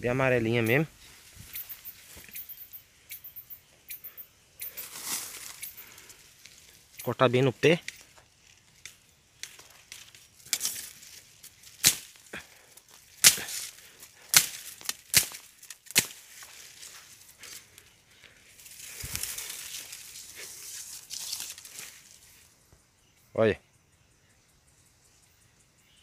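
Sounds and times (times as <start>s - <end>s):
bamboo leaves rustling: 0.0s - 3.0s, 4.1s - 22.7s
blade chopping bamboo: 11.8s - 12.2s, 13.2s - 16.2s.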